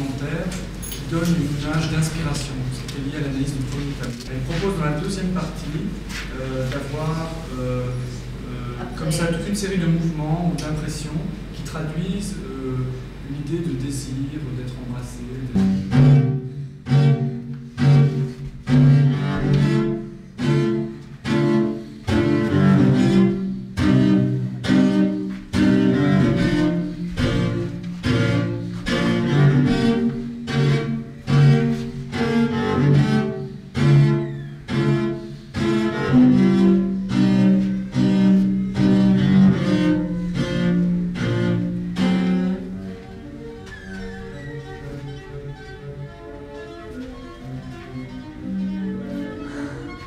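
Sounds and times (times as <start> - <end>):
solo cello playing: 15.5 - 50.0.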